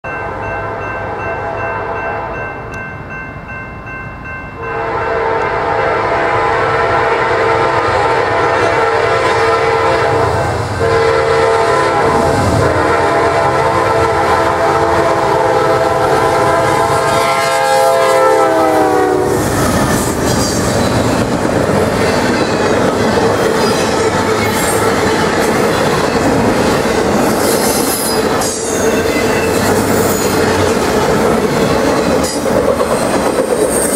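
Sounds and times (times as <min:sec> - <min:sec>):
locomotive air horn: 0:04.6 - 0:19.4
train wheels rumbling: 0:04.8 - 0:33.9.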